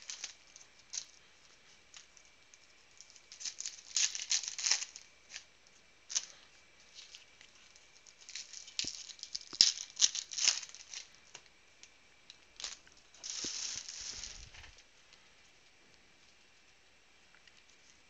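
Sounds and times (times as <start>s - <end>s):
foil wrappers crinkling and tearing: 0.0s - 5.5s, 6.1s - 11.5s, 12.3s - 14.8s.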